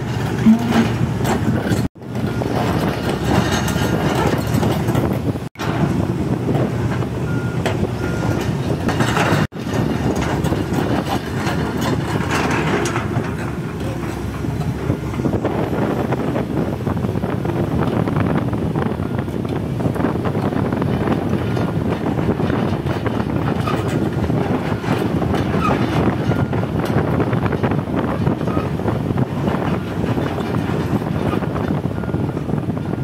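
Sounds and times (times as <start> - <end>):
diesel engine running: 0.0 - 33.0
excavator machinery and tracks clatter: 0.0 - 33.0.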